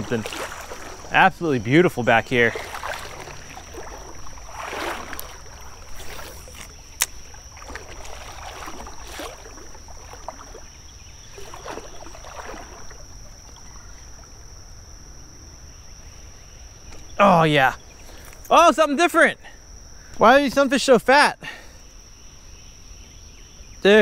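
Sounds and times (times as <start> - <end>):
creek water splashing: 0.0 - 19.1
high insect buzz: 0.0 - 20.9.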